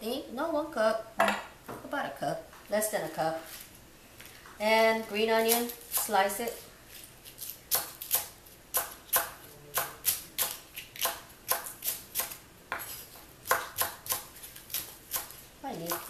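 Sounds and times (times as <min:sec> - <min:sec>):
knife chopping on wooden board: 0:07.7 - 0:16.0.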